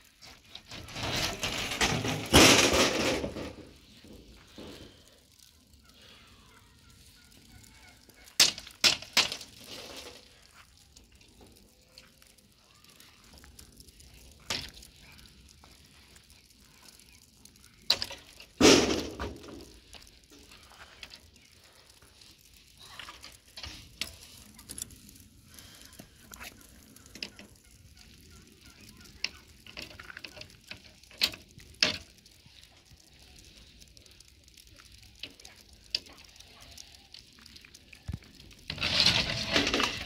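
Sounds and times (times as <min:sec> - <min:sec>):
knocks and scrapes on concrete: 0:00.2 - 0:04.8, 0:08.1 - 0:10.6, 0:17.9 - 0:21.2, 0:38.1 - 0:40.0.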